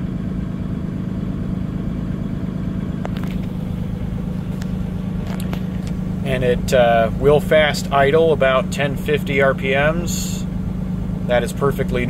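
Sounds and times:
diesel engine fast idling: 0.0s - 12.0s.

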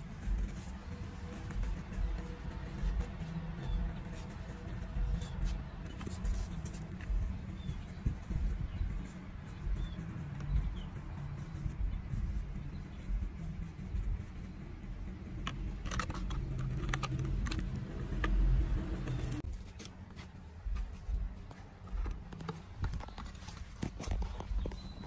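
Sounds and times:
steady low rumble: 0.0s - 19.7s, 20.4s - 25.0s
garden tool clicks and scrapes: 15.4s - 18.4s.

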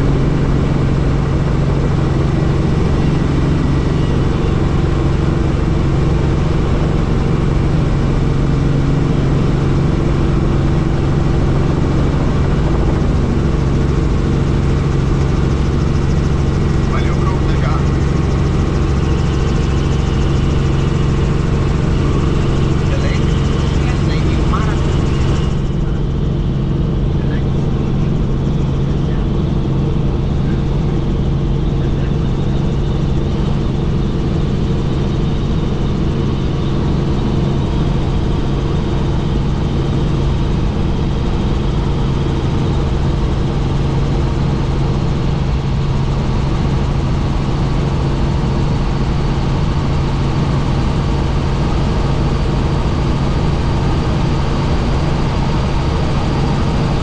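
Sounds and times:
helicopter drone: 0.0s - 57.0s.

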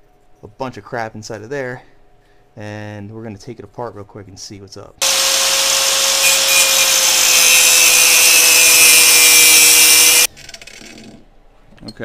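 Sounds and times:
angle grinder cutting steel: 5.0s - 10.3s.

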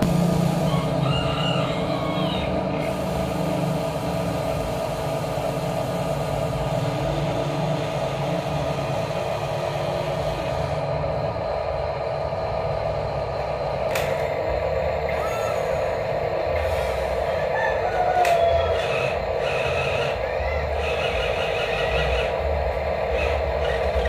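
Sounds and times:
rooster crowing: 0.3s - 2.9s, 17.2s - 22.0s
toy excavator motors whirring: 15.1s - 24.0s.

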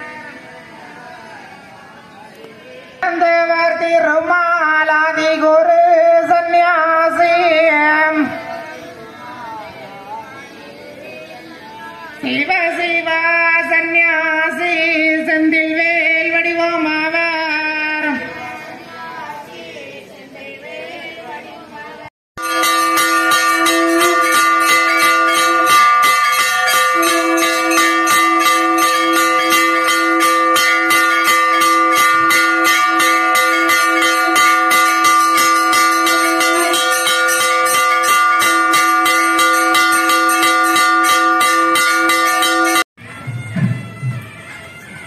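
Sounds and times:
brass bell ringing rapidly: 22.4s - 43.3s.

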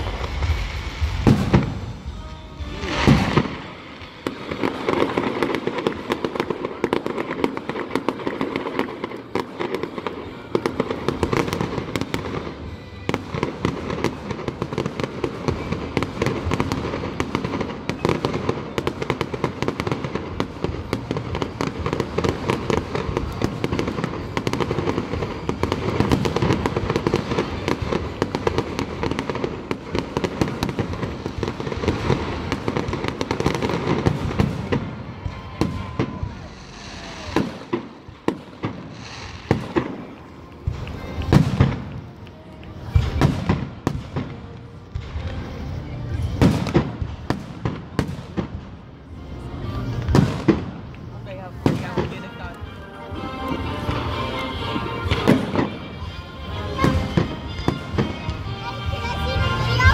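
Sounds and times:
fireworks exploding and crackling: 0.0s - 59.9s.

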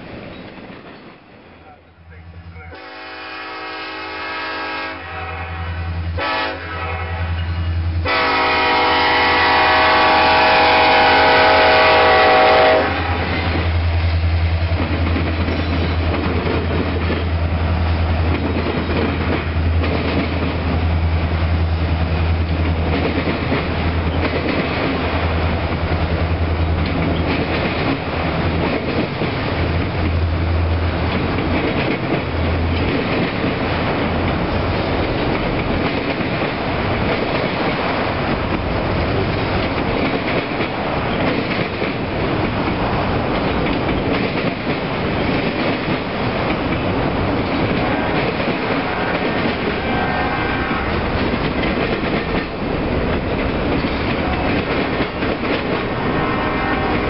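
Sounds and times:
rail cars clattering past: 0.0s - 57.0s
train horn blasts: 2.5s - 13.6s, 47.8s - 51.2s, 55.9s - 57.0s
locomotive engine rumble: 6.9s - 57.0s.

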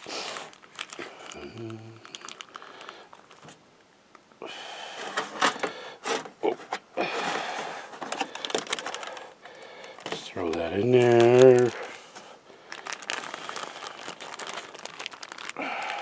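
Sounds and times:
foil plate and plastic wrap crinkling: 0.0s - 3.6s, 7.0s - 16.0s.

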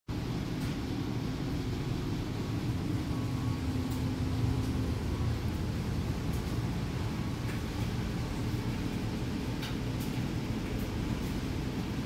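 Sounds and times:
low machine rumble and hum: 0.1s - 12.0s
faint steady tone: 2.2s - 6.1s.

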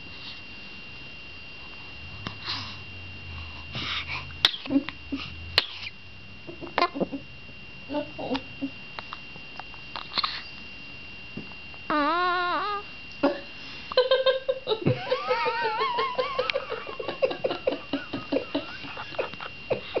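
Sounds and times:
high-pitched giggling: 13.2s - 20.0s.

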